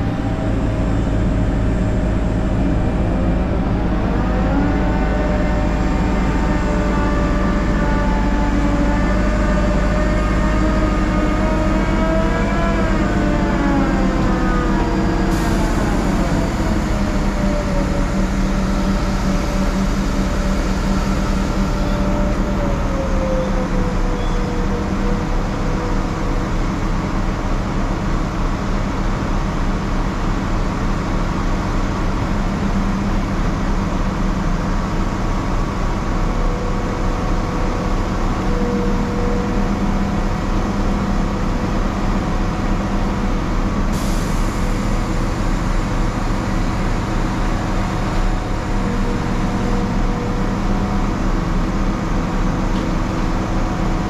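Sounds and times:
diesel engine running: 0:00.0 - 0:54.0.

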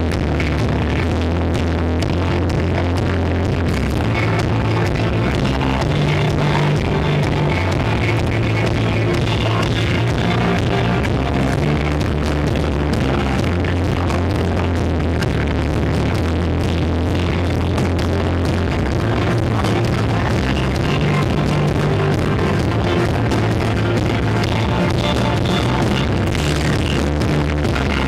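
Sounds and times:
rock band playing loud: 0:00.0 - 0:28.0.

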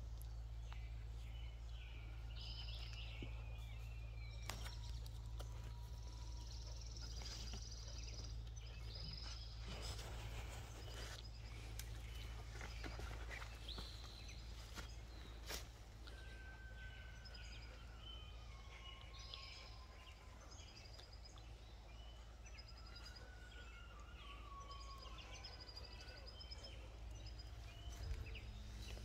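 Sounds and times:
steady low rumble: 0:00.0 - 0:23.0, 0:25.0 - 0:29.0
bird calls and trills: 0:00.0 - 0:29.0
twigs snapping and rustling: 0:04.2 - 0:06.0.

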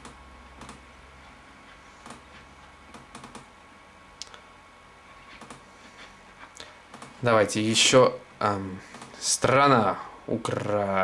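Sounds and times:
laptop clicks: 0:00.0 - 0:00.8
faint low hum: 0:00.0 - 0:11.0.

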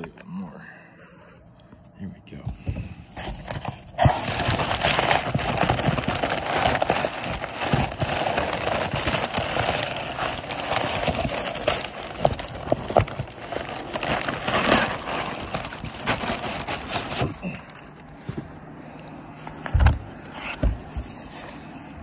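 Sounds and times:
packing paper crinkling: 0:03.2 - 0:18.4.

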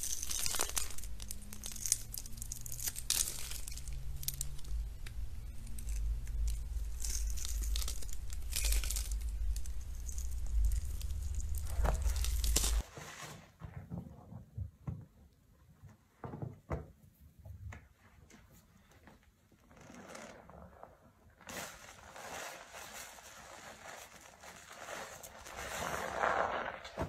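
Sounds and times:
low steady hum: 0:00.0 - 0:12.8.

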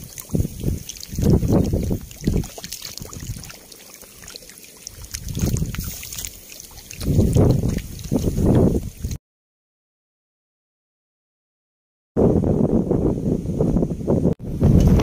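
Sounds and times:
fish splashing in shallow water: 0:00.0 - 0:09.2.

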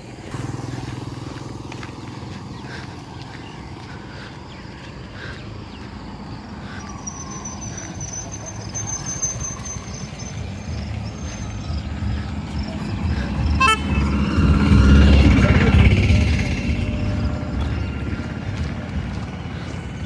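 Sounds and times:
auto-rickshaw engine: 0:00.0 - 0:20.0
short horn toot: 0:13.6 - 0:14.2.

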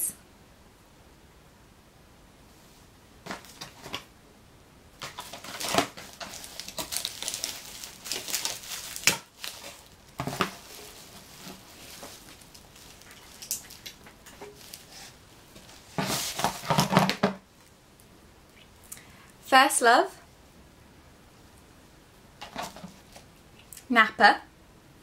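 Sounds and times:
packaging crinkling rustles: 0:05.0 - 0:17.7, 0:22.4 - 0:23.3.

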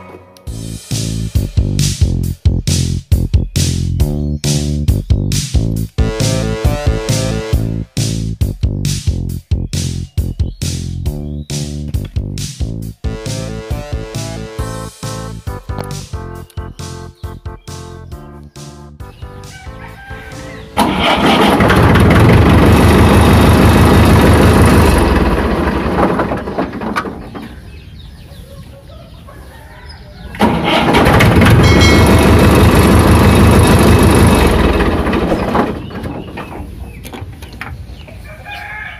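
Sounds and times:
starter motor cranking diesel engine: 0:20.6 - 0:27.5, 0:30.4 - 0:37.0.

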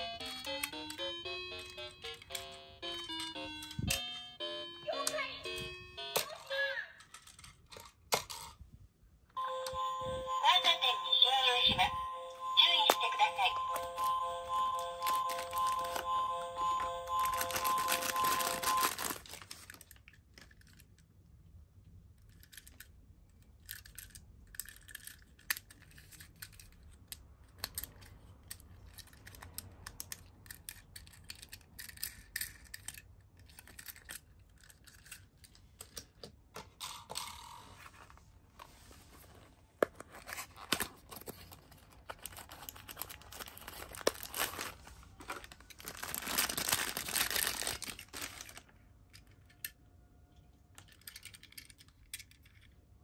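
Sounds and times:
toy cars clicking: 0:06.1 - 0:08.6, 0:17.2 - 0:21.2, 0:22.1 - 0:37.7, 0:50.8 - 0:52.8
plastic wrapping crinkling: 0:15.0 - 0:16.0, 0:17.2 - 0:20.1, 0:40.0 - 0:48.8.

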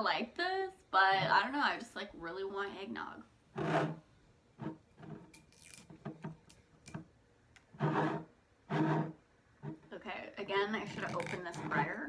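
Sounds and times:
hands peeling plastic seal: 0:10.8 - 0:12.0.

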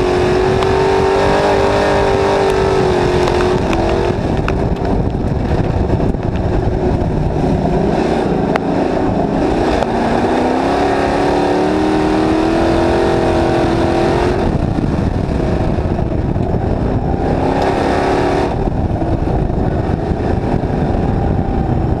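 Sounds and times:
race car engine revving: 0:00.0 - 0:22.0
tyre and wind noise: 0:00.0 - 0:22.0.

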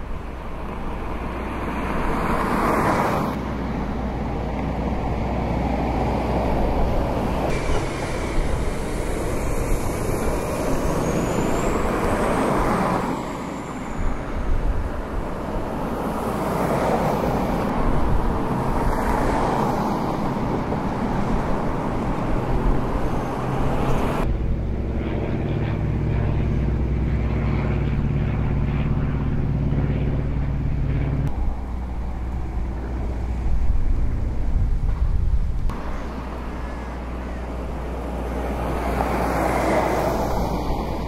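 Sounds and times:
low engine hum: 0:00.0 - 0:41.0
engine idling rough rumble: 0:03.4 - 0:12.7, 0:24.2 - 0:38.8.

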